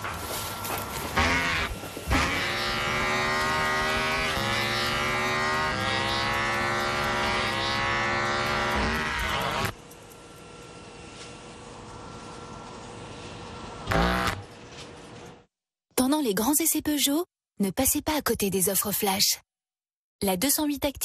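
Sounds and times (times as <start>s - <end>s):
electric hair clippers buzzing: 0.5s - 12.9s, 13.8s - 14.5s.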